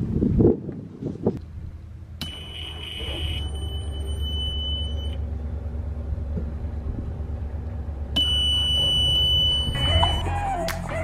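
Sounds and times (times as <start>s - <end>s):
alarm buzzer high-pitched tone: 2.2s - 5.2s
low rumble: 3.3s - 11.0s.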